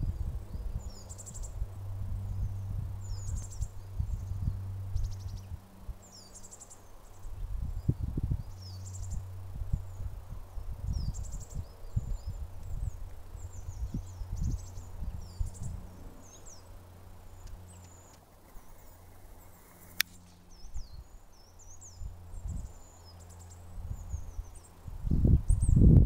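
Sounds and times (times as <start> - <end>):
low rumble: 0.0 - 6.2
small birds singing: 0.0 - 26.0
sharp click: 19.8 - 20.4.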